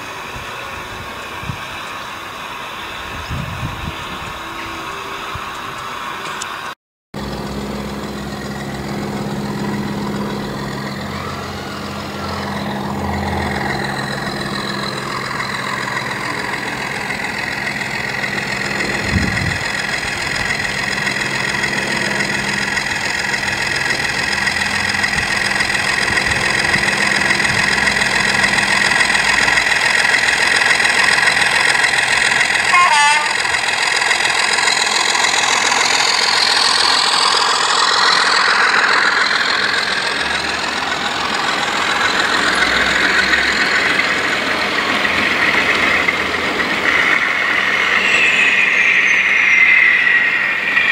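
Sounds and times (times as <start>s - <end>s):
model train diesel engine sound: 0.0s - 50.9s
wheel and rail noise: 0.0s - 50.9s.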